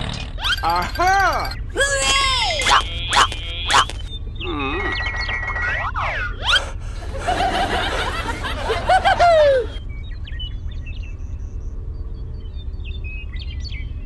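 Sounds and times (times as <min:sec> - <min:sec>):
steady low hum: 0:00.0 - 0:14.0
faint chirps: 0:00.1 - 0:06.8
cartoon swooping glides: 0:02.6 - 0:07.8
high-pitched comic chuckle: 0:06.5 - 0:09.8.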